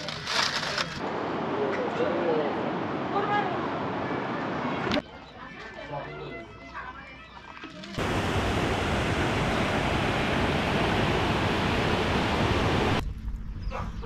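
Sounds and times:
stream rushing over boulders: 8.0s - 13.0s.

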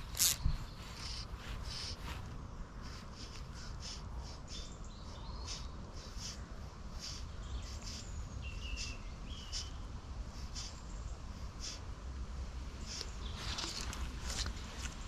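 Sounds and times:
small birds chirping: 0.0s - 15.0s
steady low rumble: 0.0s - 15.0s
whistled bird calls: 3.2s - 6.4s, 7.0s - 9.9s.

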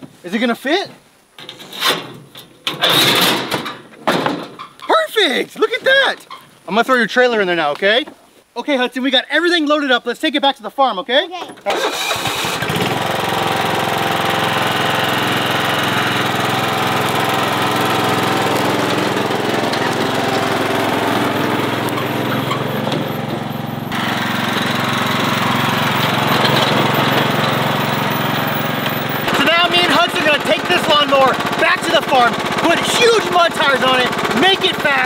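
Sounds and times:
lawn tractor engine running: 11.6s - 35.0s.

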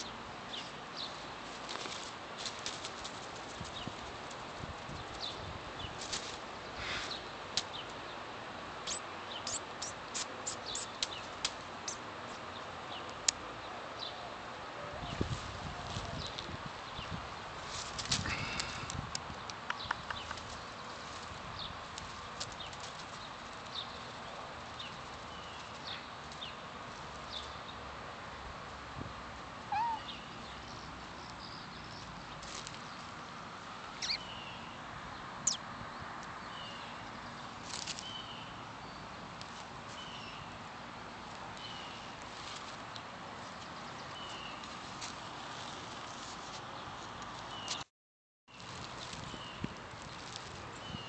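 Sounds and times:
small birds chirping: 0.0s - 14.3s, 15.1s - 27.8s, 29.7s - 47.8s, 48.5s - 51.0s
steady background hiss: 0.0s - 47.8s
cat meowing: 29.7s - 30.1s.

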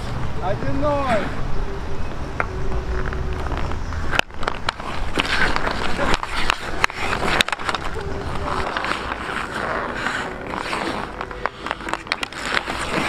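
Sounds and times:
skates scraping on ice: 3.0s - 13.0s
hockey sticks clicking on puck: 4.1s - 13.0s.

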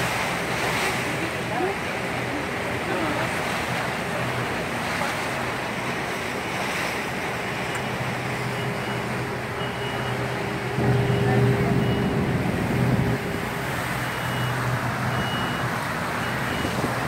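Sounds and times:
low engine hum: 0.0s - 17.0s
water rushing past boat hull: 0.0s - 17.0s
wind buffeting microphone: 8.6s - 17.0s.

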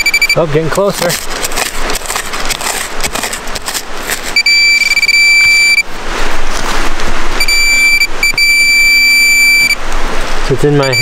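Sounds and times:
pinpointer high steady beep: 0.0s - 0.4s, 4.4s - 5.8s, 7.4s - 9.8s, 10.8s - 11.0s
soil being dug by hand: 0.0s - 5.7s.

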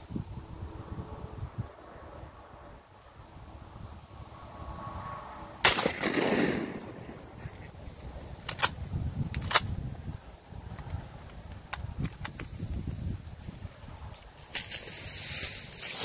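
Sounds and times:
shotgun shot echoing: 5.6s - 7.3s.

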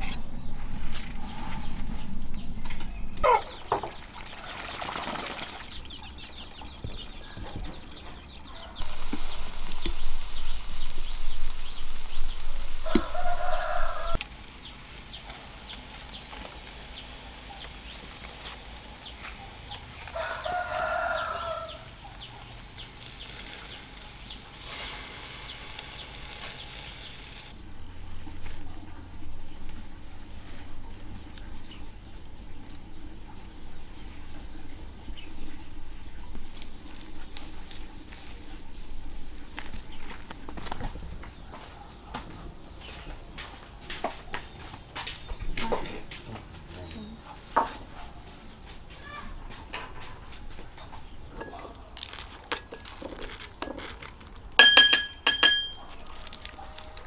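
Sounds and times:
chickens: 10.8s - 14.2s
rooster crowing: 12.8s - 14.2s, 20.1s - 21.9s.

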